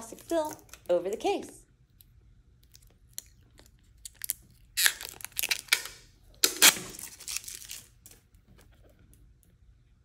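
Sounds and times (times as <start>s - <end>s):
plastic film crinkling and peeling: 3.0s - 8.4s.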